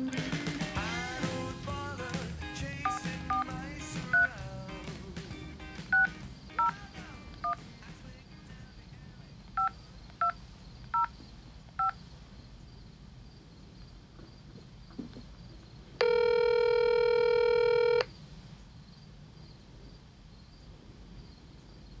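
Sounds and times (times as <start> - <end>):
two-tone keypad beeps: 2.8 - 3.5, 4.1 - 4.3, 5.9 - 6.8.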